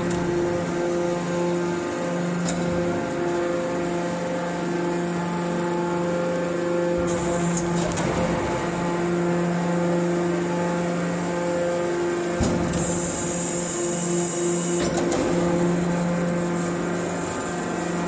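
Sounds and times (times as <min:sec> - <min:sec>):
baler pump and motor humming: 0:00.0 - 0:18.0.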